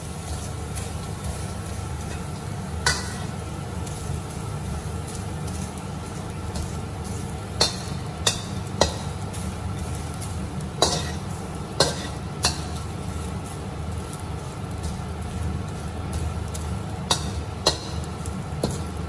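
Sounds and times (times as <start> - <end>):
fish sizzling in oil: 0.0 - 19.0
metal spatula stirring: 10.8 - 12.8, 14.8 - 18.9.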